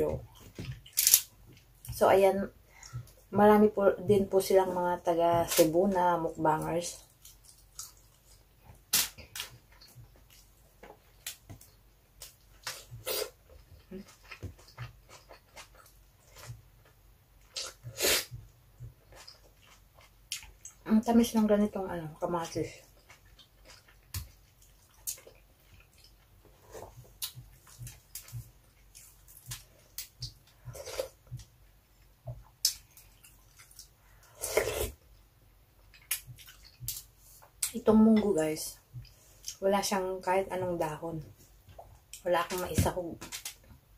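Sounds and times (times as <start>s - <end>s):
person chewing: 7.0s - 20.8s, 22.8s - 37.7s.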